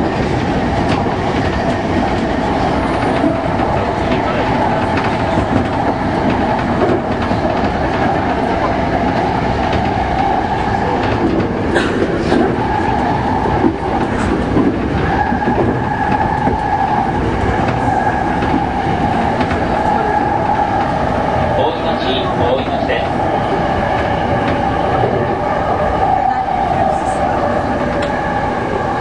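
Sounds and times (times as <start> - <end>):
wheels clicking over rail joints: 0.0 - 21.0
train running noise: 0.0 - 29.0.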